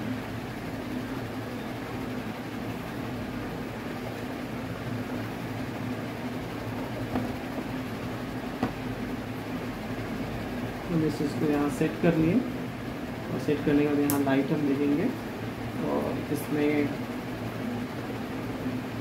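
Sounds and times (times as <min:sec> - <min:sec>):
fan mechanical hum: 0:00.0 - 0:19.0
light knocks on table: 0:07.1 - 0:07.7, 0:08.6 - 0:08.8.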